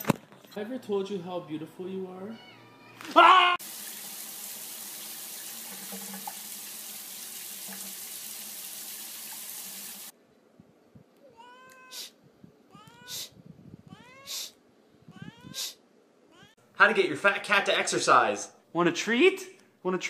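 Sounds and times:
running water spraying: 0:03.6 - 0:10.1.

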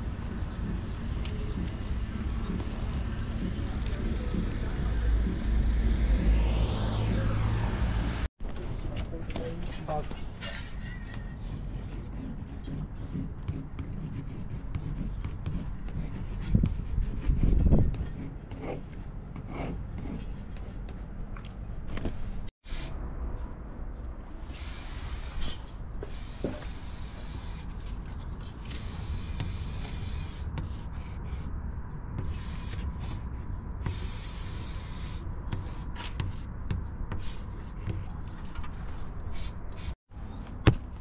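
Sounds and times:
marker scratching on glass: 0:01.6 - 0:04.6, 0:11.4 - 0:18.8.

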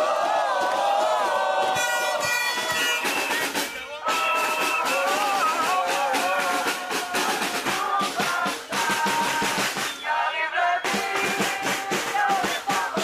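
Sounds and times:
marching drums beating: 0:00.1 - 0:13.0
whistles blowing: 0:01.8 - 0:05.6, 0:09.5 - 0:11.3
person shouting through megaphone: 0:03.7 - 0:08.0.

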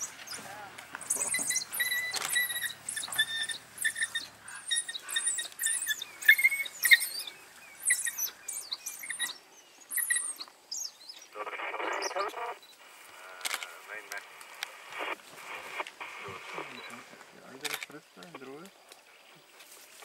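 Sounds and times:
wild dogs chirping and squealing: 0:00.0 - 0:13.0.

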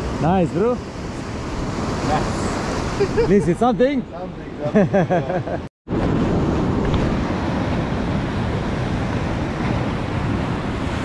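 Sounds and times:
ocean surf breaking: 0:00.0 - 0:11.0
wind on microphone: 0:05.9 - 0:11.0.

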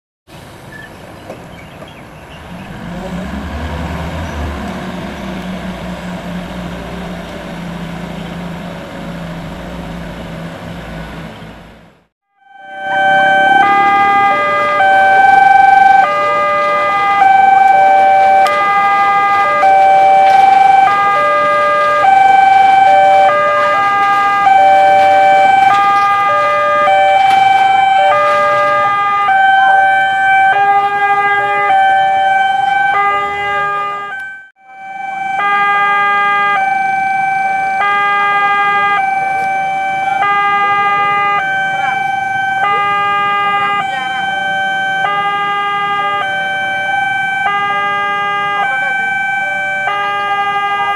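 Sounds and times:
lower alarm note: 0:12.2 - 0:50.8
level crossing alarm two-note tone: 0:12.3 - 0:50.7.

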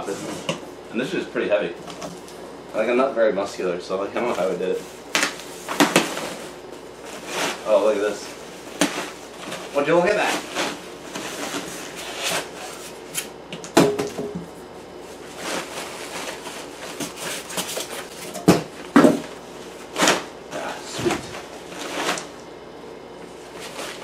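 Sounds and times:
sharp knocks: 0:13.8 - 0:14.5
plastic sheet rustling: 0:15.0 - 0:18.3.

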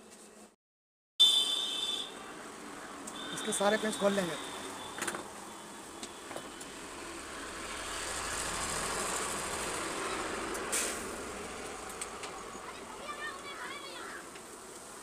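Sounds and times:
broad rumbling noise: 0:07.2 - 0:12.1
short sharp hiss: 0:10.6 - 0:11.3.

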